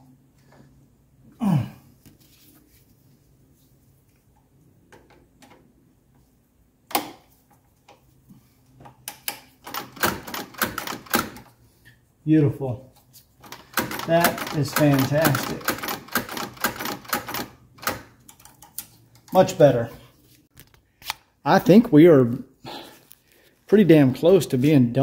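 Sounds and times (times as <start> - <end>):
throttle linkage clicking: 13.4 - 18.7.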